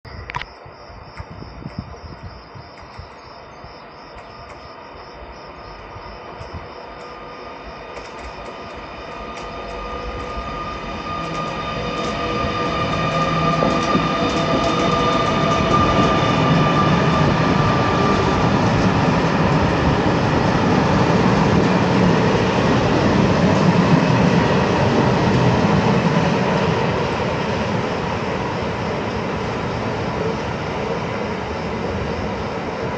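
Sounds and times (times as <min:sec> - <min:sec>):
electric locomotive high tones: 0:02.8 - 0:32.9
freight wagon wheels rumbling: 0:08.0 - 0:26.0.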